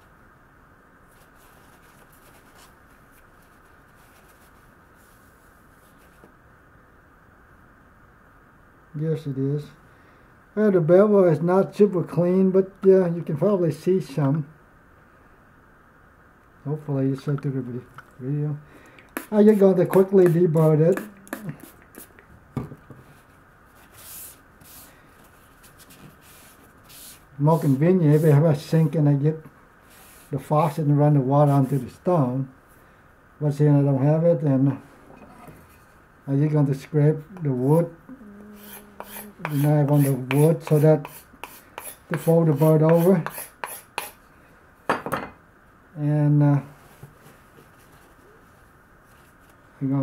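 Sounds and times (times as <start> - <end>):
low background hiss: 0.0 - 50.0
cloth rubbing on whetstone: 23.1 - 28.4, 38.6 - 43.9
paper towel wiping knife blade: 38.6 - 44.1.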